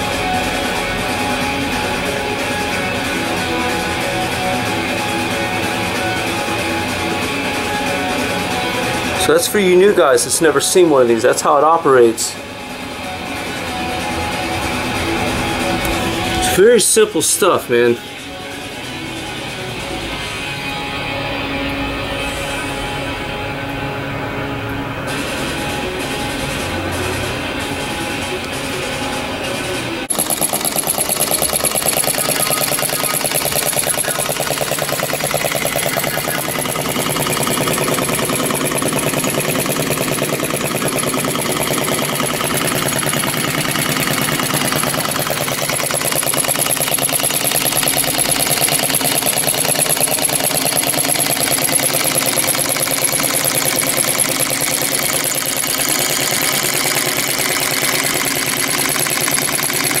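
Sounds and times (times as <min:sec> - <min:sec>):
model engine mechanical clatter: 0:30.0 - 1:00.0.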